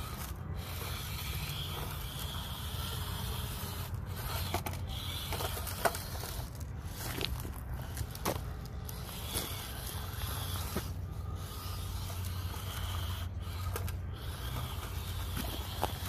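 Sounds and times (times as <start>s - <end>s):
toy car motor hum: 0.0s - 16.0s
tyres crunching on rocks: 4.3s - 16.0s.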